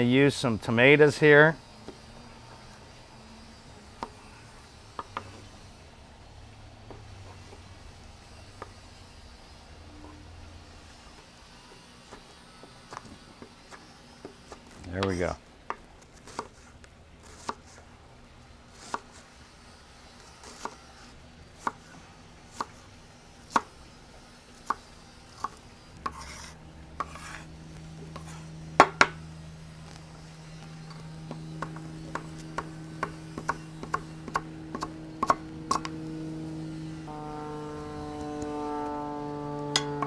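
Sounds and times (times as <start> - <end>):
knife chopping on wooden board: 25.4 - 27.5, 28.1 - 29.2, 31.3 - 35.9.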